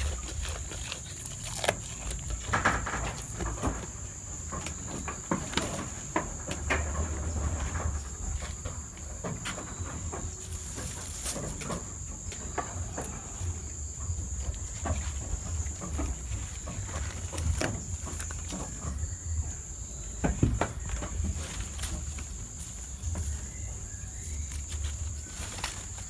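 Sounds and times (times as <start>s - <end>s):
goats chewing leaves: 0.0s - 26.0s.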